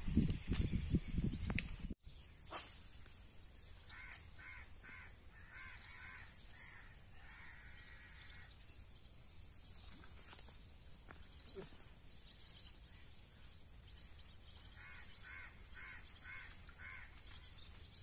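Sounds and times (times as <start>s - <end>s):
crow cawing: 3.9s - 8.5s, 14.7s - 17.4s.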